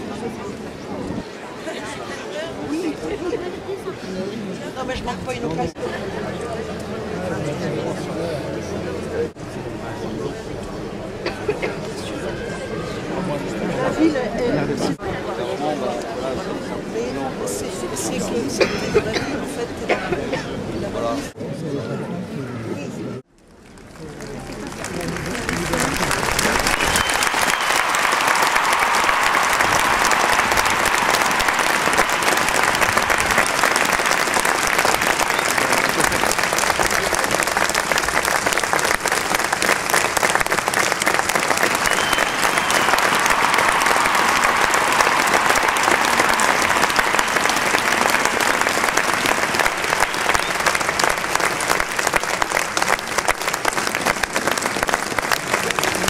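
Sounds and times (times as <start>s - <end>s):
crowd voices: 0.0s - 56.0s
large crowd applauding: 23.6s - 56.0s.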